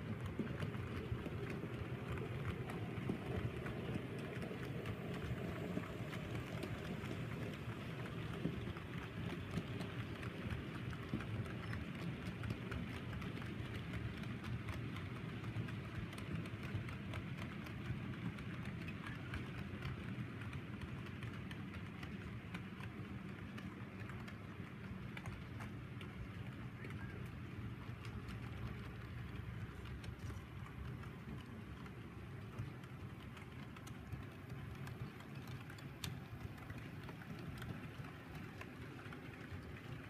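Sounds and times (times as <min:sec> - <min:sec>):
wheels clicking over rails: 0:00.0 - 0:40.0.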